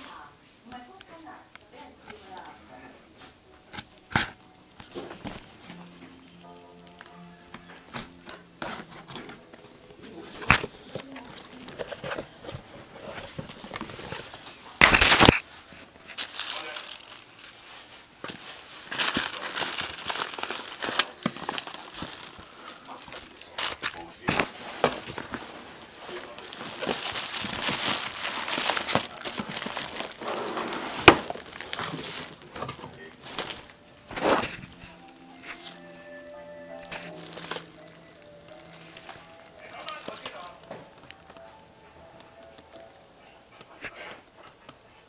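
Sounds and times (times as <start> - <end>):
rustling and crinkling: 7.1 - 43.0
cardboard package being opened: 10.3 - 41.6.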